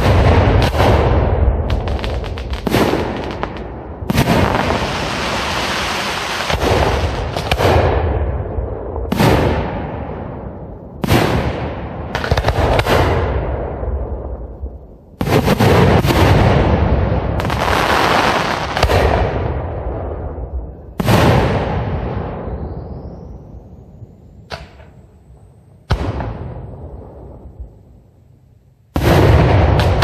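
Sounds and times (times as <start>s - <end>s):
firework booms with echoing rumble: 0.0s - 23.6s, 25.9s - 27.9s, 28.9s - 30.0s
firework whistle: 22.2s - 26.7s.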